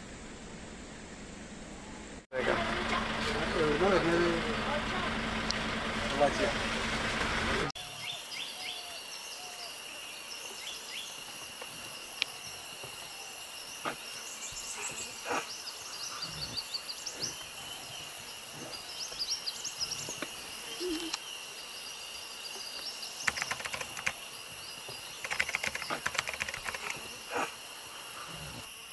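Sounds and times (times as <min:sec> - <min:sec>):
insect drone: 0:07.7 - 0:28.9
bird chirps: 0:14.2 - 0:21.4
rapid clicking: 0:23.2 - 0:24.2, 0:25.2 - 0:27.0.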